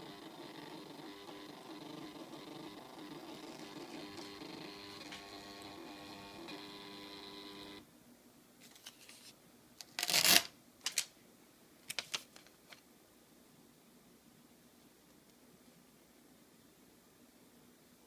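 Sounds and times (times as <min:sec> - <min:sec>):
receipt printer whining: 0:00.0 - 0:07.8
paper rustling: 0:08.6 - 0:09.4.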